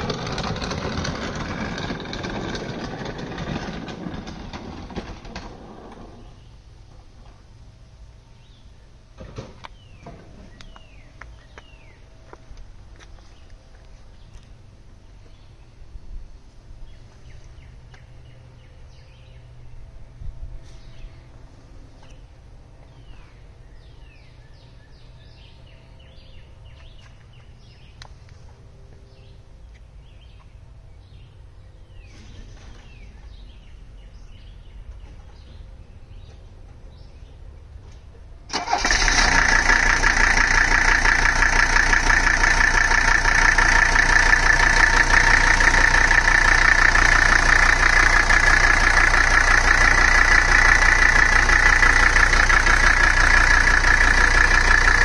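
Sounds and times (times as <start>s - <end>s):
diesel car engine running: 0.0s - 8.8s, 38.5s - 55.0s.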